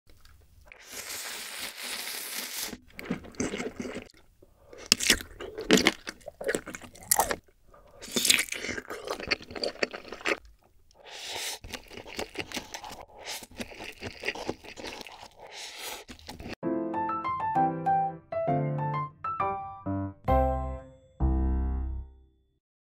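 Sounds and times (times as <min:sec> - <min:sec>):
crunchy chewing: 0:00.1 - 0:16.6
noodles slurped: 0:00.1 - 0:16.6.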